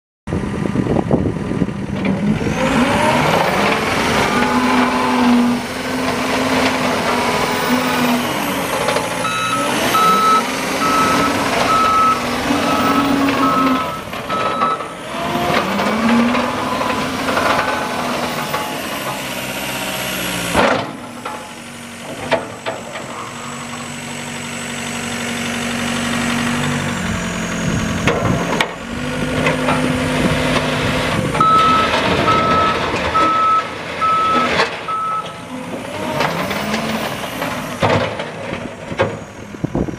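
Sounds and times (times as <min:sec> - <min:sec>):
diesel loader engine running: 0:00.3 - 0:39.9
backup alarm beeping: 0:09.2 - 0:14.9, 0:31.4 - 0:35.4.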